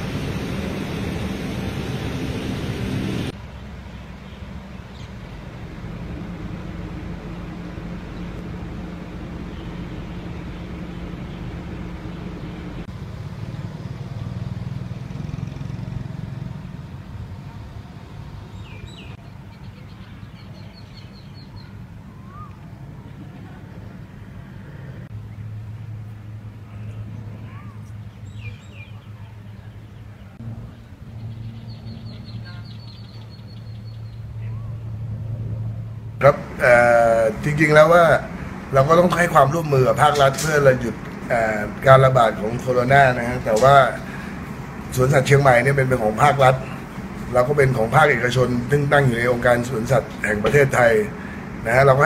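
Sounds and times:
low engine hum: 0:00.0 - 0:52.0
bird chirps: 0:18.6 - 0:22.6, 0:27.6 - 0:34.8.

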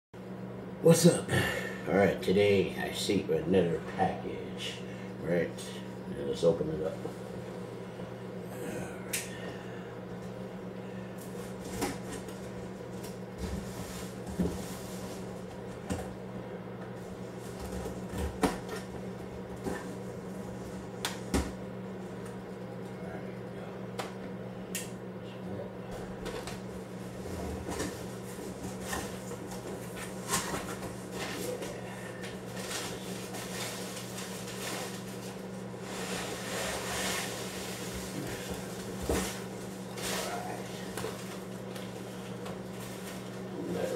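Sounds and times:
steady low hum: 0:00.2 - 0:43.9
cardboard scraping and rustling: 0:32.5 - 0:41.4.

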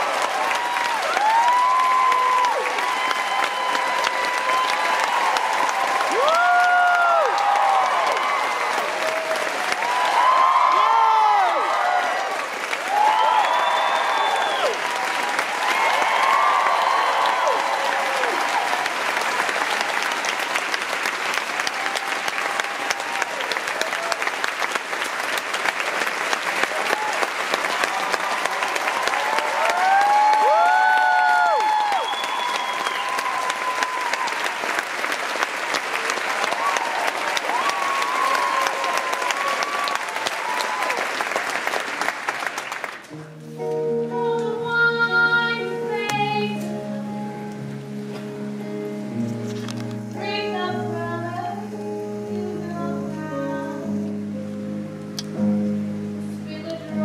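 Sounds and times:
whoops and cheers: 0:00.0 - 0:20.2, 0:21.6 - 0:24.5, 0:26.6 - 0:34.9, 0:35.7 - 0:41.3
audience applauding: 0:00.0 - 0:43.2
band playing sustained chords: 0:43.2 - 0:52.6.

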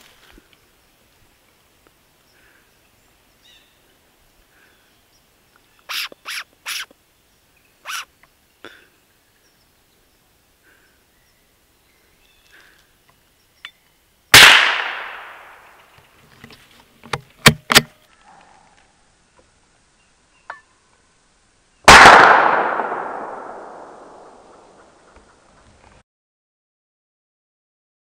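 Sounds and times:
air rifle shots: 0:14.4 - 0:15.7, 0:21.9 - 0:24.9.

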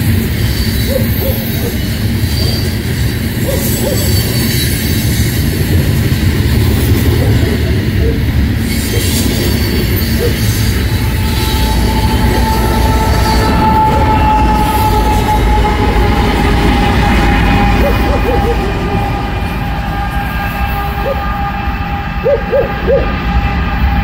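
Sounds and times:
diesel locomotive engines running: 0:00.0 - 0:24.0
train wheels rumbling on rail: 0:00.0 - 0:24.0
thin wheel squeal: 0:00.4 - 0:05.4, 0:08.6 - 0:16.4.

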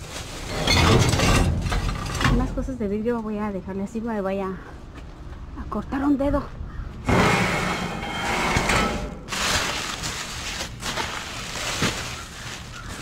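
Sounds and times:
plastic bags rustling: 0:00.0 - 0:02.1, 0:08.7 - 0:13.0
metal dumpster door scraping: 0:00.0 - 0:02.7, 0:07.0 - 0:12.2.

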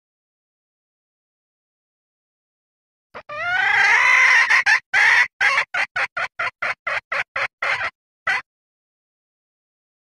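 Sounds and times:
hen clucking: 0:03.2 - 0:08.5
junglefowl hen calling: 0:03.2 - 0:08.5.

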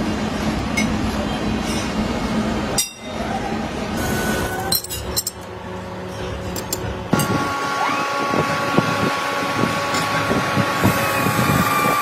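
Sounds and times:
workshop machinery humming: 0:00.0 - 0:12.0
metallic clinks of steel parts: 0:04.6 - 0:05.5.

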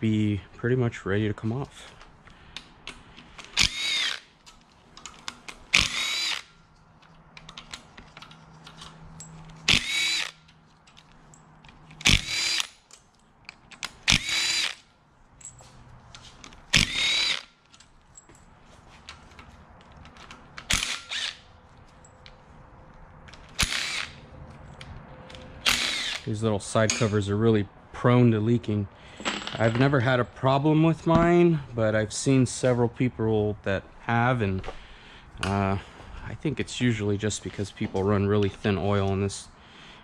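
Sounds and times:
cordless power driver whirring: 0:03.5 - 0:04.3, 0:05.8 - 0:06.5, 0:09.7 - 0:10.4, 0:12.0 - 0:12.7, 0:14.0 - 0:14.9, 0:16.8 - 0:17.5, 0:20.7 - 0:21.5, 0:23.6 - 0:24.2, 0:25.6 - 0:26.3.

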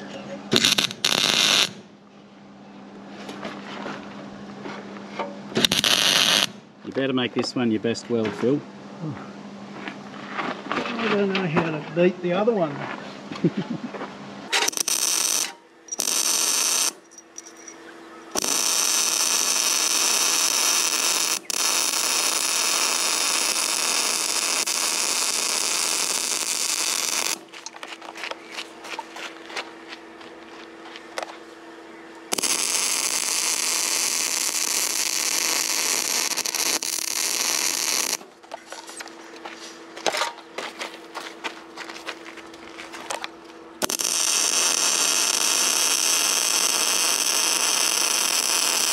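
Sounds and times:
welding arc crackling and hissing: 0:00.0 - 0:01.8, 0:05.6 - 0:06.6, 0:14.5 - 0:17.0, 0:18.3 - 0:27.7, 0:32.3 - 0:38.2, 0:43.8 - 0:48.9
steady low hum: 0:00.0 - 0:48.9.

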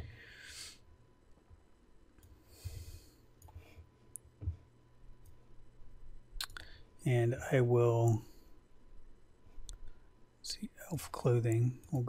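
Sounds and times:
soft breath out: 0:02.4 - 0:03.9.

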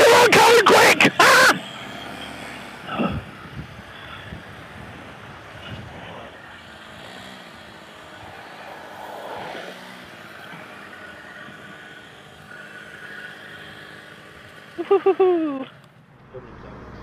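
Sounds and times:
vehicle engines running: 0:00.0 - 0:17.0.

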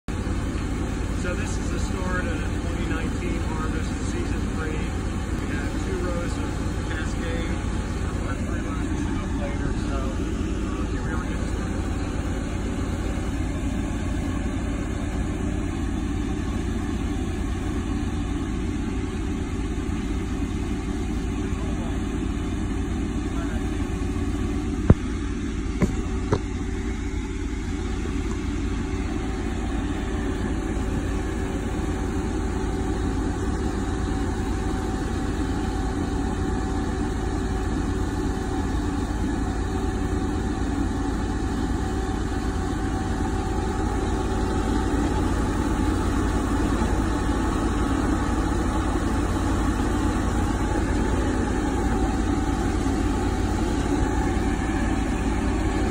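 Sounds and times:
engine running: 0:00.0 - 0:55.9
sharp knocks: 0:25.8 - 0:26.5.

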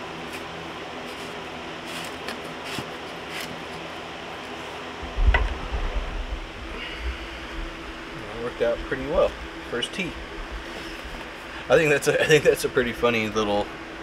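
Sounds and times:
steady low hum: 0:03.9 - 0:14.0
low rumble with knock: 0:05.0 - 0:08.9.

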